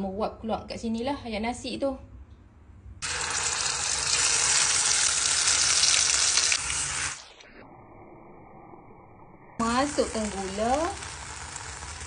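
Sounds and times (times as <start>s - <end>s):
paste sizzling in hot oil: 3.0s - 7.3s, 9.6s - 12.0s.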